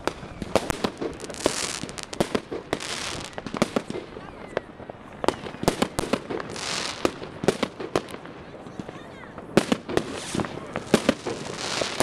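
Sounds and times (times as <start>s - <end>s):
firecrackers banging: 0.0s - 12.0s
hissing crackle: 9.7s - 12.0s.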